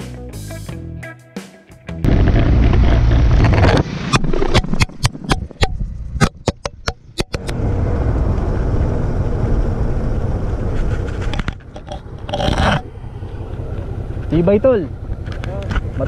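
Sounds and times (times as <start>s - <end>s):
motorcycle rumble: 2.0s - 16.0s
steady rushing noise: 2.0s - 16.0s
wind: 2.0s - 16.0s
camera clattering on asphalt: 10.6s - 12.9s, 15.0s - 16.0s.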